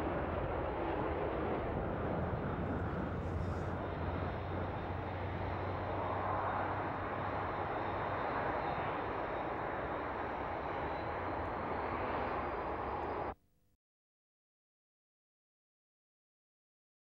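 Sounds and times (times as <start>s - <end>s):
jet engines in afterburner: 0.0s - 13.4s.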